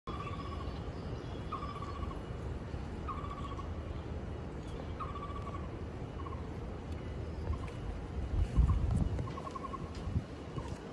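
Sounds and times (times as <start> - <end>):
bird trilled call: 0.1 - 2.4, 3.0 - 3.8, 4.7 - 6.5, 8.6 - 9.9
low outdoor rumble: 0.1 - 10.9.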